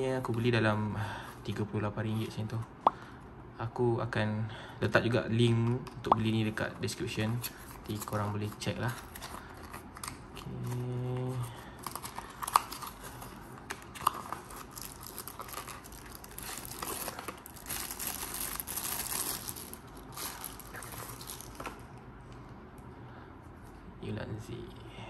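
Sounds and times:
plastic crinkling: 0:11.7 - 0:21.9.

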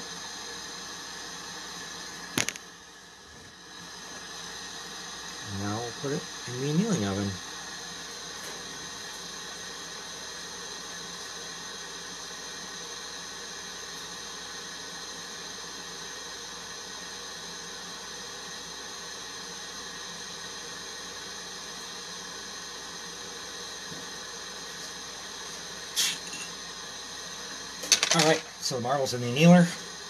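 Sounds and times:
gas torch hissing: 0:00.0 - 0:30.0.

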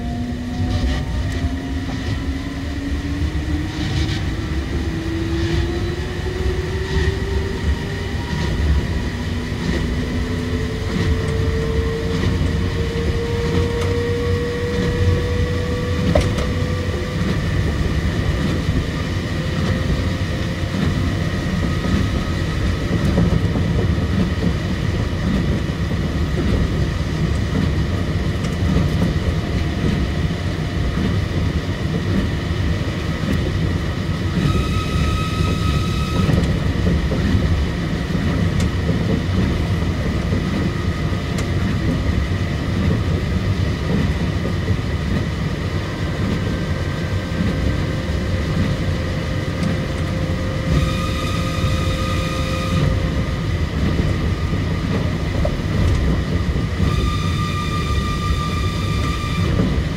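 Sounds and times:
train rumble: 0:00.0 - 0:59.9
higher whining tones: 0:56.8 - 0:59.9.

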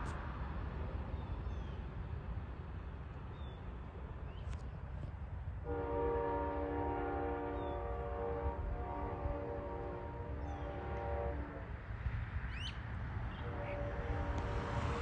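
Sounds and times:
passing road traffic: 0:00.0 - 0:15.0
wind rumble: 0:00.0 - 0:15.0
locomotive horn chord: 0:05.6 - 0:11.8, 0:13.4 - 0:15.0.

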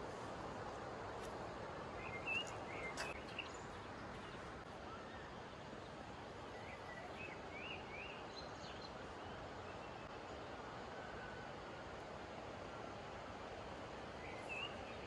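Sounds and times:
flowing river water: 0:00.0 - 0:15.0
small birds chirping: 0:02.0 - 0:10.2.

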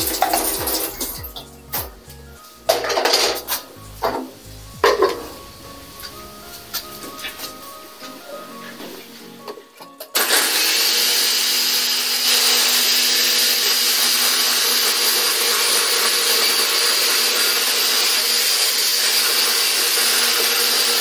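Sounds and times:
blender motor running: 0:10.2 - 0:21.0.

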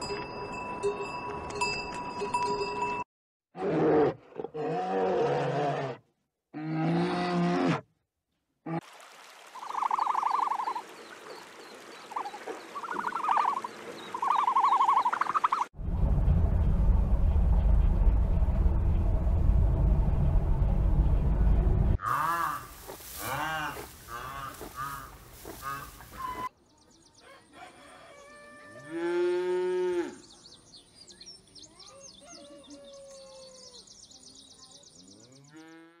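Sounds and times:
loud low rumble: 0:15.8 - 0:22.0
cow mooing: 0:28.8 - 0:30.2.

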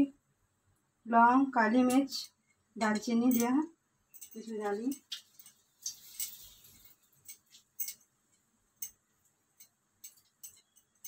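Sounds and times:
spices sizzling in hot oil: 0:05.2 - 0:07.8.

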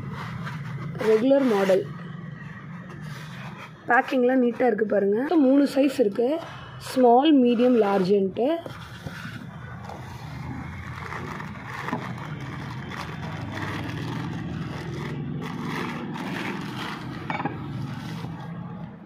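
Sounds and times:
metal scraping on countertop: 0:00.0 - 0:18.8
plastic packaging crinkling: 0:10.4 - 0:18.0.

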